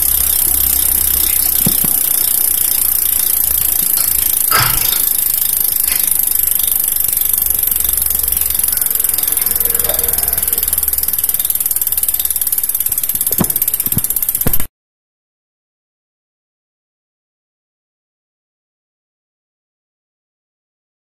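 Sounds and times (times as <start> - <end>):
bicycle freehub buzzing: 0.0 - 14.7
sharp knocks: 4.5 - 5.1.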